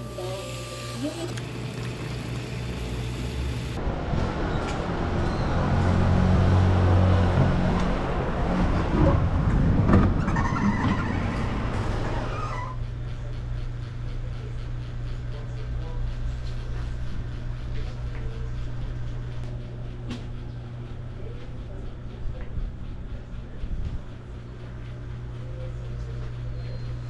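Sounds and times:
city street traffic: 0:01.0 - 0:13.3
vehicle passing: 0:03.8 - 0:10.2
low indoor room hum: 0:10.2 - 0:27.0.

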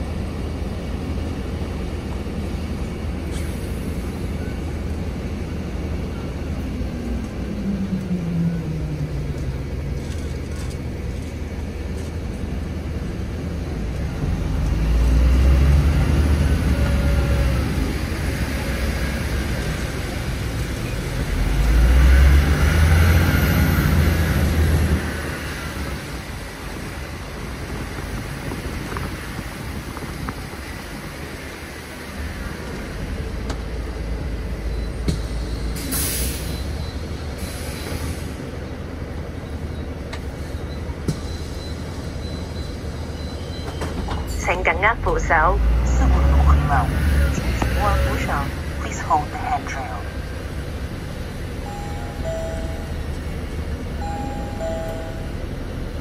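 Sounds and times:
bus drivetrain rumbling: 0:00.0 - 0:56.0
air brake hiss: 0:35.8 - 0:36.6, 0:37.4 - 0:38.4.

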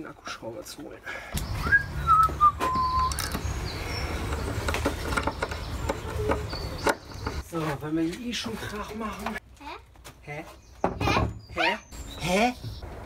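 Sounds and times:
whistled notes stepping down: 0:01.5 - 0:03.4.

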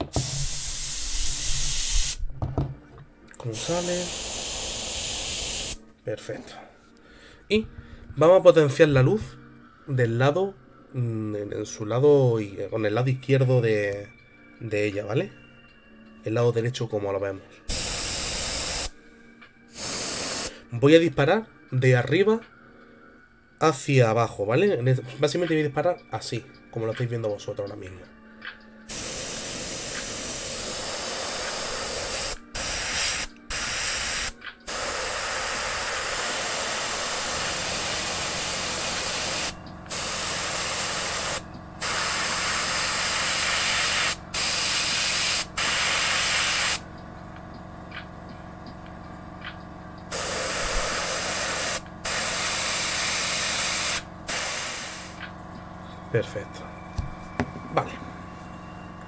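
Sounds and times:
airbrush spraying: 0:00.0 - 0:02.2, 0:03.5 - 0:05.8, 0:17.7 - 0:19.0, 0:19.7 - 0:20.5, 0:28.9 - 0:46.8, 0:50.1 - 0:55.2.

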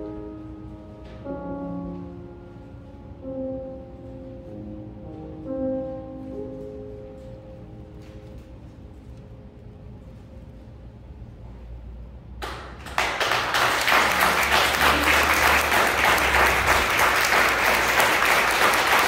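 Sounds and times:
piano chord: 0:00.0 - 0:11.6, 0:13.2 - 0:19.0
audience applauding: 0:12.4 - 0:19.0.

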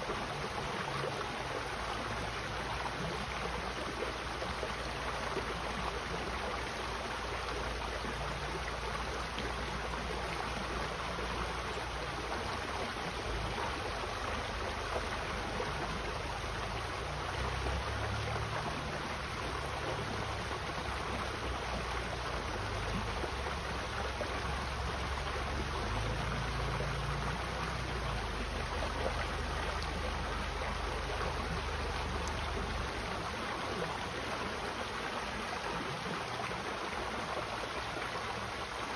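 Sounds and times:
creek water running over rocks: 0:00.0 - 0:38.9.

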